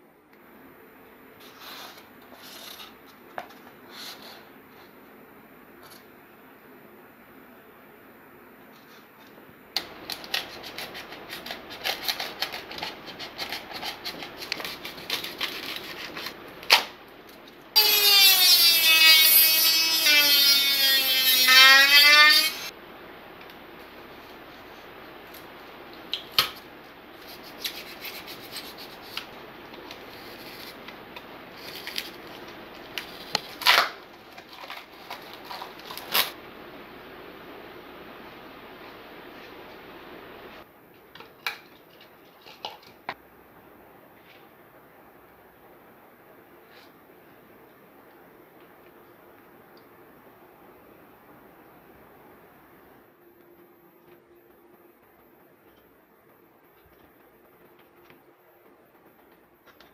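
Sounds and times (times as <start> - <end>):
knife blade scraping foam: 1.4 - 3.0, 10.2 - 16.4, 27.2 - 29.3, 29.9 - 30.9.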